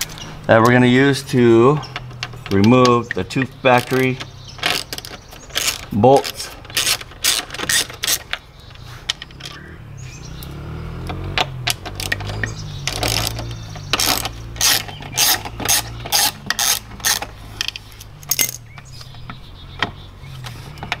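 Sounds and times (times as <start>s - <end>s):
socket ratchet clicking: 1.8s - 8.4s, 11.1s - 21.0s.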